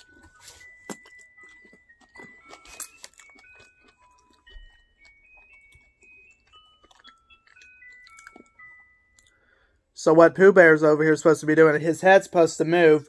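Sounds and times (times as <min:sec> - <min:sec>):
musical clock electronic melody: 0:00.0 - 0:11.4
chewing clicks: 0:00.9 - 0:08.5.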